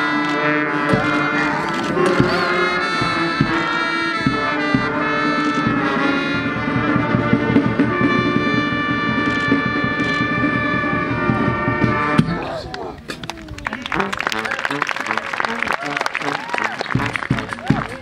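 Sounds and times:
brass band playing: 0.0 - 13.0, 13.7 - 18.0
sharp drum hits: 2.0 - 5.0.

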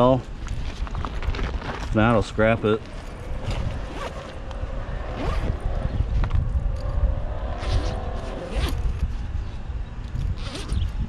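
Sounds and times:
steady low rumble: 0.0 - 11.0
scraping and rustling handling: 0.2 - 4.5.

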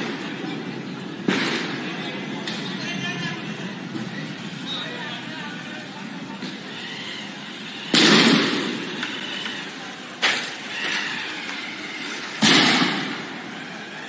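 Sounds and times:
loud blasts: 0.0 - 2.9, 6.3 - 14.0
street din: 0.0 - 14.0.

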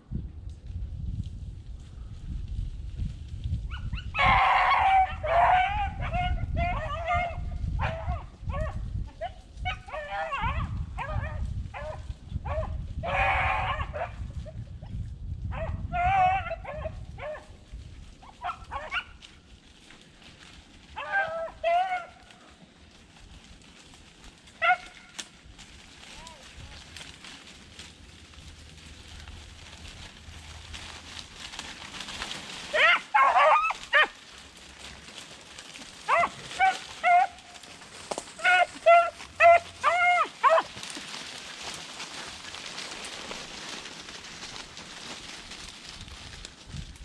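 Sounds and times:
wind rumble on microphone: 0.0 - 22.3, 22.9 - 34.9, 43.1 - 47.0
hounds baying: 3.7 - 14.2, 15.5 - 17.6, 18.2 - 19.3, 20.9 - 22.6, 24.6 - 25.2, 32.6 - 34.3, 36.0 - 41.2.

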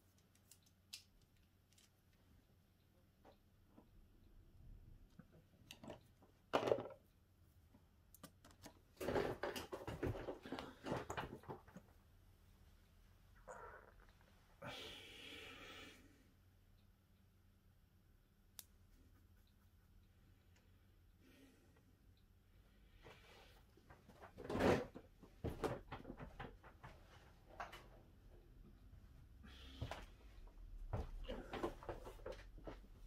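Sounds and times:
low steady room hum: 0.0 - 33.0
small clicks of phone parts: 0.2 - 2.2.

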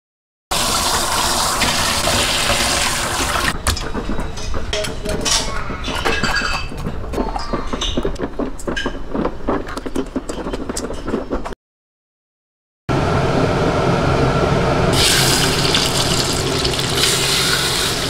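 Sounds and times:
water running: 0.5 - 3.6, 15.0 - 18.0.

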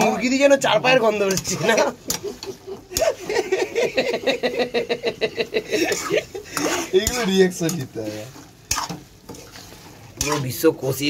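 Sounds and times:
ladle scraping metal pan: 5.7 - 10.9.

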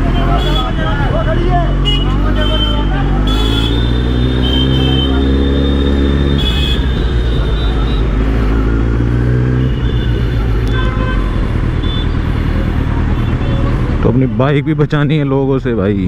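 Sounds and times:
vehicle horn toots: 1.8 - 8.2, 9.5 - 12.2.

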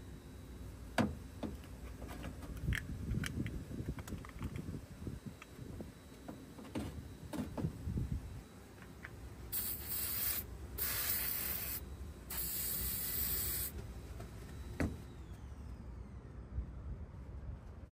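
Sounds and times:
aerosol spray hissing: 9.5 - 13.8.

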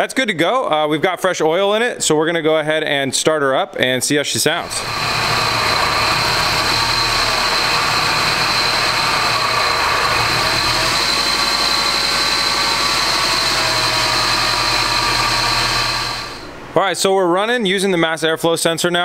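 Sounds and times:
car engine idling roughly: 4.7 - 16.4.

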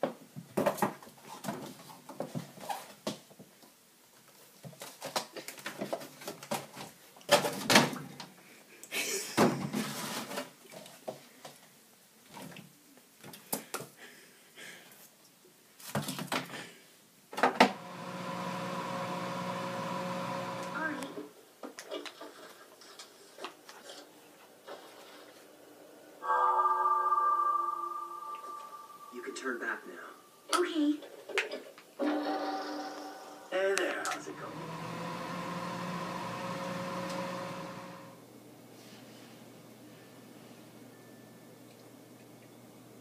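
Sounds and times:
microwave oven humming: 17.6 - 21.2, 34.2 - 38.3.

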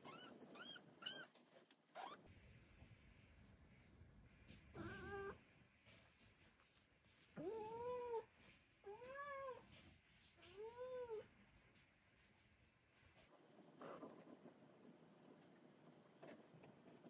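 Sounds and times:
cat meowing: 4.8 - 5.4.

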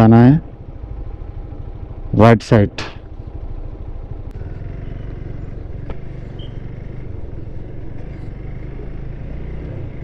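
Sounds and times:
motorcycle engine running: 3.1 - 10.0.

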